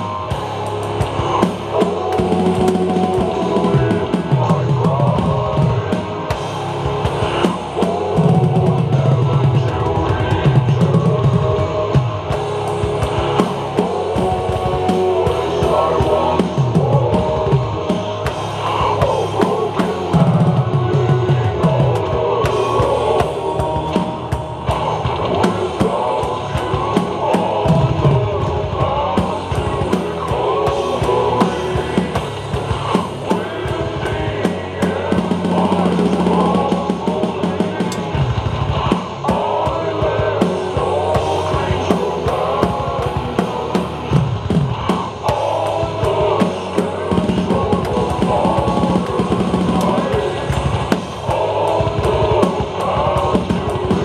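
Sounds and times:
drum kit playing: 0.0 - 54.0
heavy rock recording: 0.0 - 54.0.

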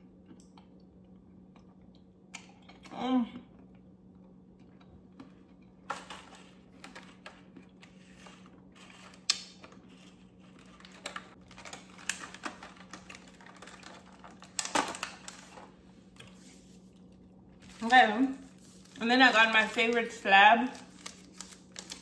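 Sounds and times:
candy rattling in plastic tub: 8.2 - 15.7, 17.6 - 22.0.

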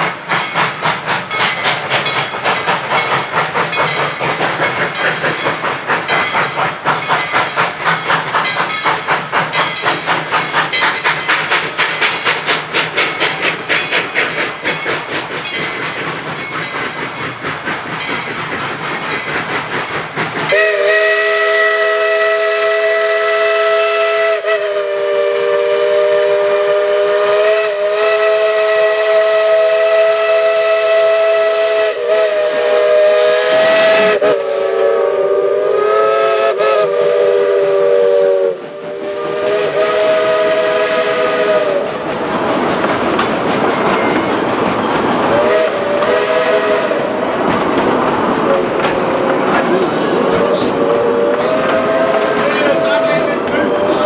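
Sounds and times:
steam locomotive chuffing: 0.0 - 54.0
chime steam whistle blast: 20.5 - 42.0, 45.3 - 47.2, 50.2 - 54.0.

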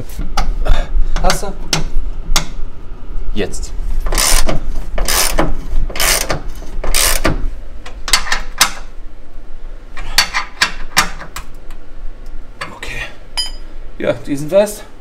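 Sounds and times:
ratchet wrench clicking: 4.1 - 4.4, 5.0 - 5.4, 6.0 - 7.3.

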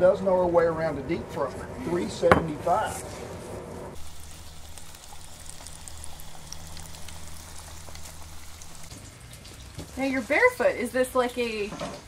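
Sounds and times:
low steady hum: 0.8 - 9.6
small crackles: 4.0 - 10.6
hot oil sizzling in fryer: 4.0 - 12.0.

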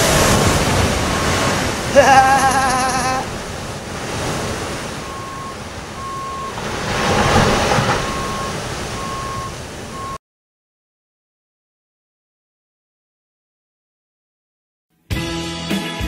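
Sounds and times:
surf rushing: 0.0 - 10.2
vehicle backup alarm beeping: 0.8 - 1.7, 4.9 - 10.2.

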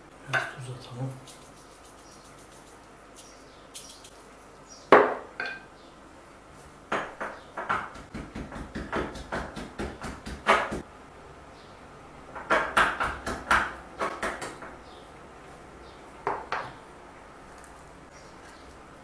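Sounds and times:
wooden pestle pounding in mortar: 6.9 - 10.8, 12.4 - 14.6.

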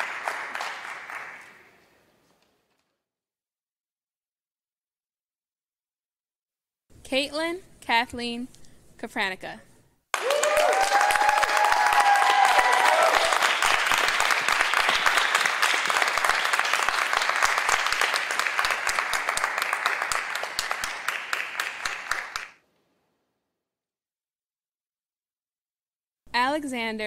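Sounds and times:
audience applauding: 0.0 - 1.8, 10.1 - 22.6
voices whooping and cheering: 10.2 - 13.6.

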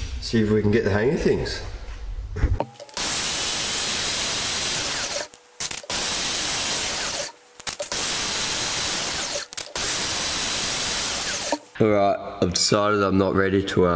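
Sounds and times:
belt sander grinding metal: 2.7 - 11.8.

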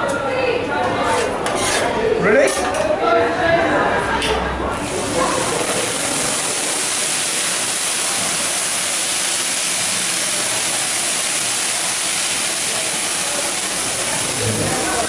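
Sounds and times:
hot grill plate hissing and sizzling: 4.7 - 15.0.

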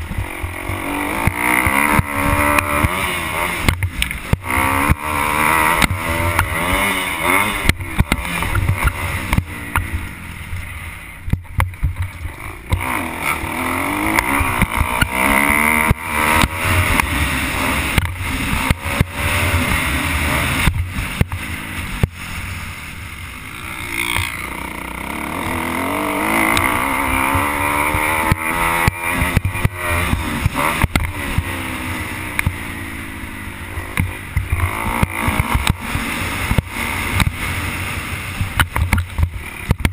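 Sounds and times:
motocross bike engine revving: 0.0 - 39.9
wind noise: 34.0 - 39.9.

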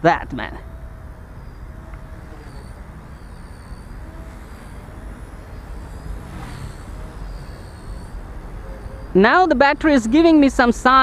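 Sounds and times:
toy helicopter motor whine: 0.8 - 8.7.

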